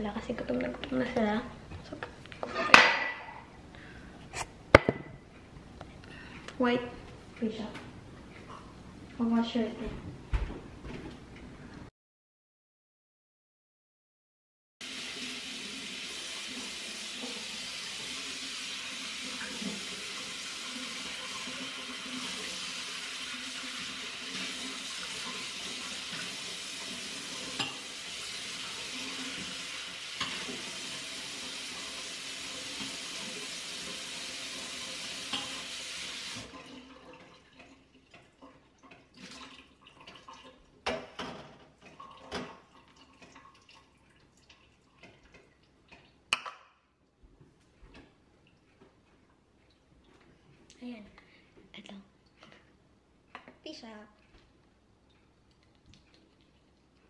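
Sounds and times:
dishes clinking and knocking: 2.4 - 3.5, 40.8 - 42.6.

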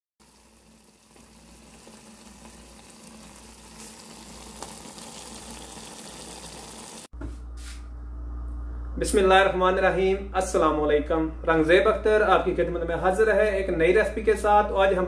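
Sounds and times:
gravy sizzling in a pot: 0.2 - 7.1.

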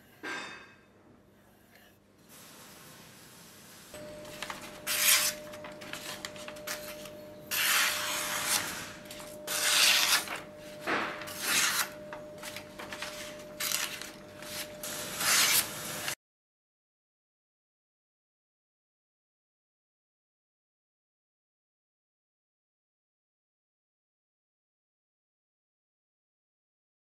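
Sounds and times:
knife slicing through paper: 4.3 - 16.2.

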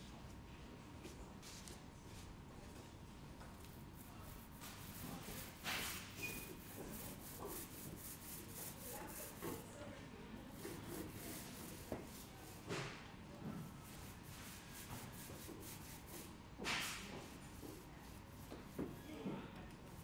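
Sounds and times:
swishing rubs against a wall: 3.9 - 9.7, 10.5 - 12.6, 13.8 - 19.0.

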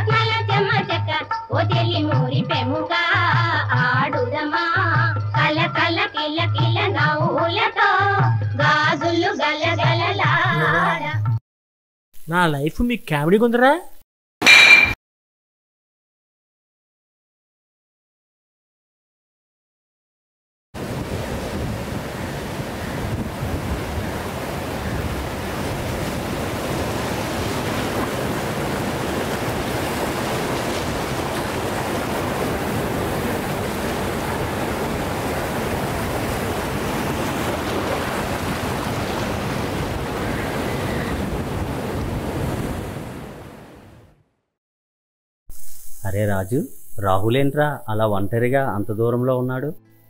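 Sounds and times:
wind rumbling on microphone: 20.8 - 43.4
surf washing onto beach: 20.8 - 43.7.

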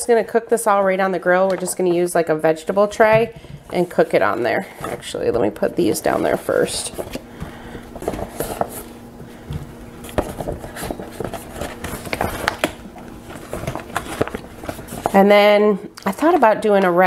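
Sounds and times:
plastic bag crinkling: 3.7 - 15.3.

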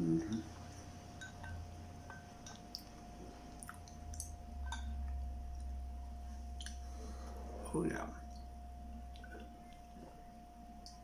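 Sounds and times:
low hum: 0.0 - 11.0
soft chewing clicks: 0.2 - 5.8, 6.5 - 6.8, 8.3 - 10.2, 10.8 - 11.0.

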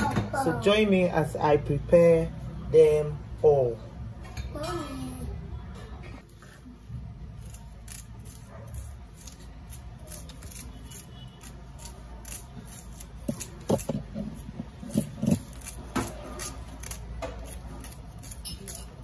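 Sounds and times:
knife slicing onion: 7.4 - 19.0.

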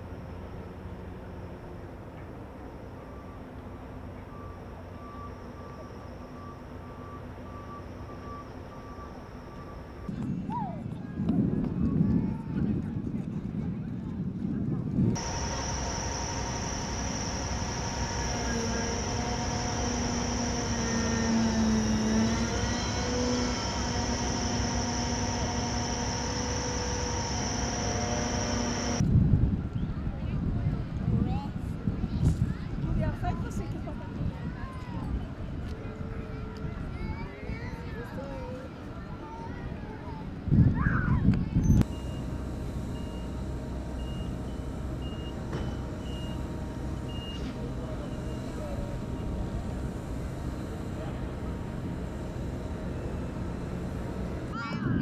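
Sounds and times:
gas turbines droning with whine: 0.0 - 10.3, 14.9 - 29.8, 37.9 - 55.0
reversing alarm beeps: 3.0 - 10.1, 15.2 - 29.0, 41.8 - 54.6
low engine rumble: 15.0 - 29.0, 41.4 - 55.0.

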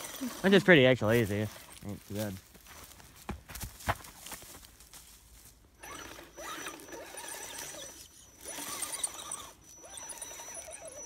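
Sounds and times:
electric motor and gears whining: 0.0 - 2.3, 5.8 - 11.0.

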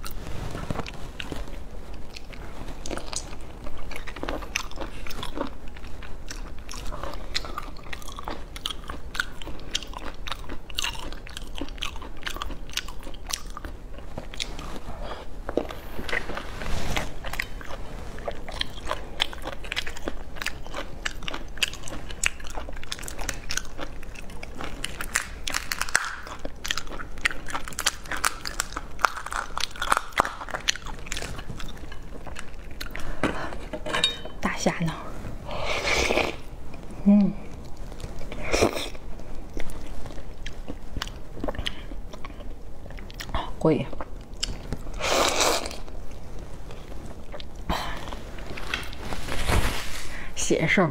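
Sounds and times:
biting and chewing: 0.0 - 33.7, 37.5 - 43.4.

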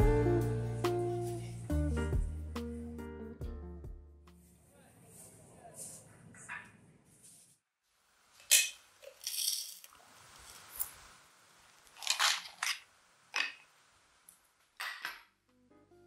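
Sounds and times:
salt pouring into glass jar: 9.0 - 12.8.

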